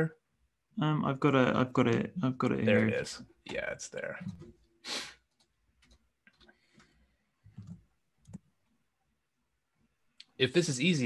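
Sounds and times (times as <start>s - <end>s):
computer mouse clicks: 5.3s - 8.8s.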